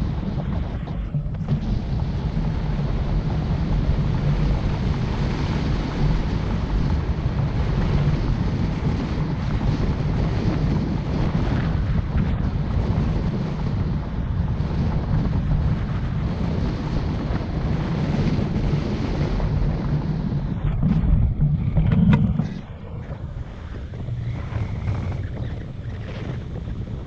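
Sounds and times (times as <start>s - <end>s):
low rumble of road noise: 0.0s - 27.0s
wind buffeting microphone: 0.0s - 27.0s.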